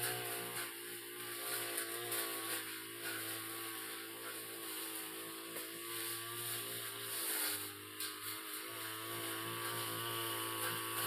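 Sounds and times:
brush cutter cutting grass: 0.0 - 11.0.

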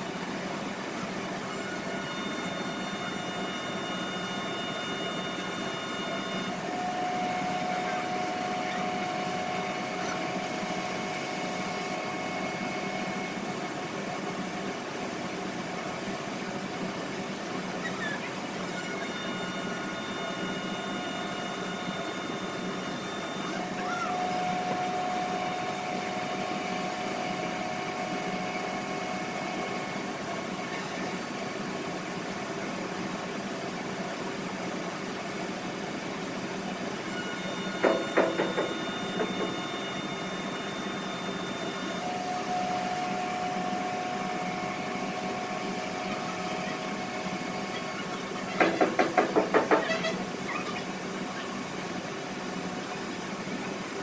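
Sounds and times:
machine droning: 1.0 - 32.6, 36.7 - 52.1
whining tones: 1.5 - 13.6, 17.8 - 31.1, 37.0 - 48.4.

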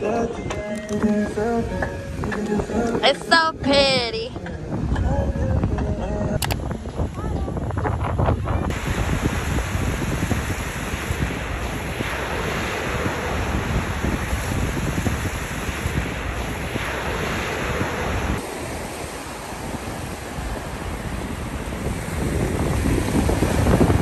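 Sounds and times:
wind rumble on microphone: 0.0 - 24.0
small ocean waves breaking: 8.7 - 24.0.

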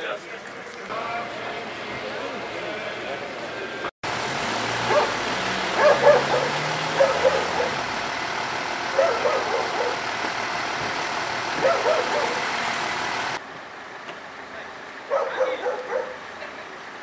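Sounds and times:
vehicle engine idling: 0.0 - 17.0
dog barking: 4.9 - 7.8, 8.9 - 10.0, 11.6 - 12.4, 15.1 - 16.2.

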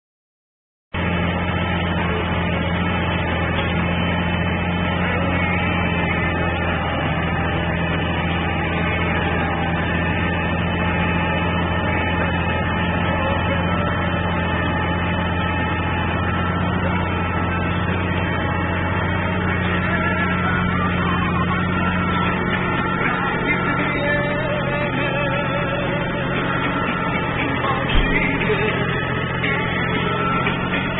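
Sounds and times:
tractor engine running under load: 1.0 - 30.9.

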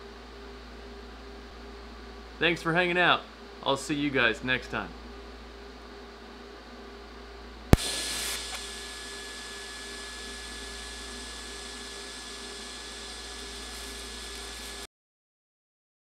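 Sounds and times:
low electrical hum: 0.0 - 14.9
welding arc hissing: 7.8 - 14.9.

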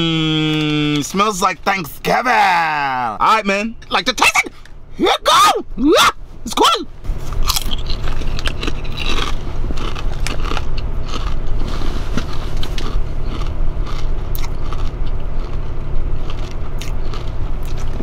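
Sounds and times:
low rumble inside a car: 0.0 - 18.0
potato chip crunching: 7.3 - 18.0.

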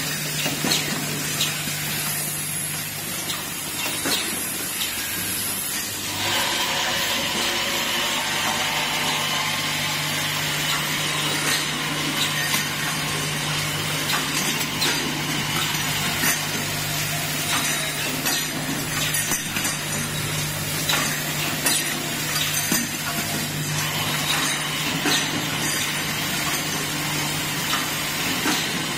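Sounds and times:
machine hum: 6.0 - 28.9
sharp metallic clicks and clinks: 10.6 - 27.0.

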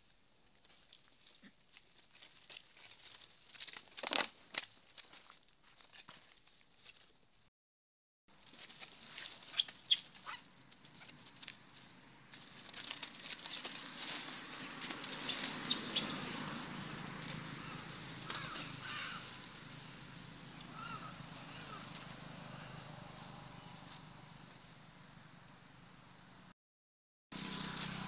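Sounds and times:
dry leaves rustling and crunching: 0.6 - 7.0, 8.3 - 19.8, 27.4 - 28.0
short high squeaks: 9.2 - 10.5.

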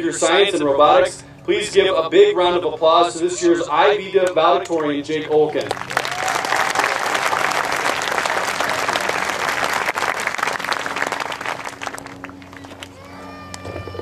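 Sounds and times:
large crowd applauding: 5.6 - 13.7.

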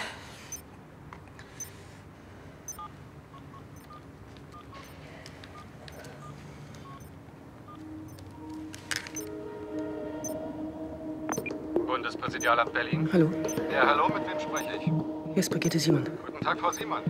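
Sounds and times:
telephone keypad beeps: 2.7 - 4.0, 5.6 - 7.1, 11.3 - 11.5, 16.7 - 16.9.

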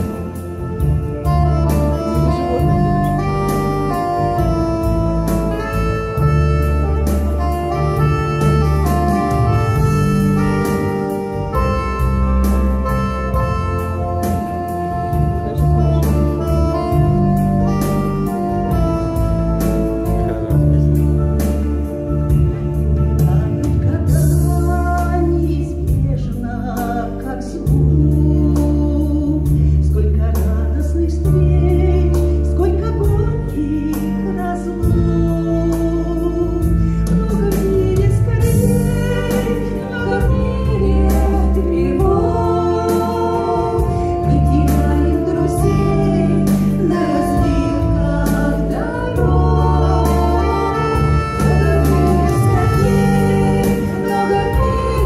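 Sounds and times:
amplified instrumental accompaniment: 0.0 - 55.0
women singing into microphones: 23.3 - 55.0.

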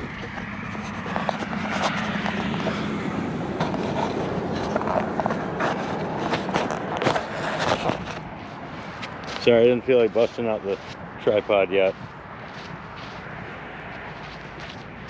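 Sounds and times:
fingers rubbing phone microphone: 0.0 - 13.3.

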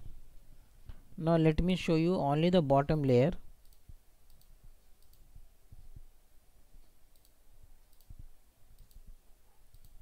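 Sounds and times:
computer mouse clicks: 3.6 - 5.9, 6.8 - 10.0.

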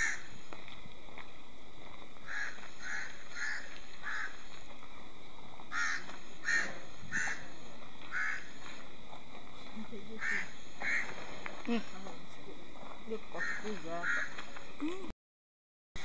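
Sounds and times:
bird harsh caw calls: 0.0 - 0.3, 2.2 - 4.5, 5.7 - 7.5, 8.1 - 8.6, 10.2 - 11.2, 13.4 - 14.4.

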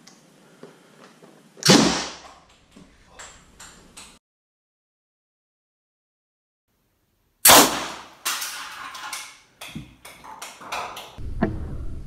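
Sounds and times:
air cannon bang: 7.4 - 8.1.

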